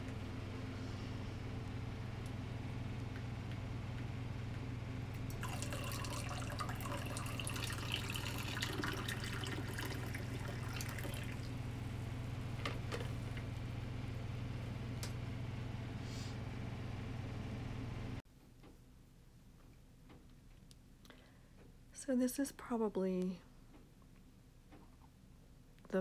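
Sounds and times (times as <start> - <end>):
low hum: 0.0 - 18.2
coffee pouring into a mug: 5.3 - 11.6.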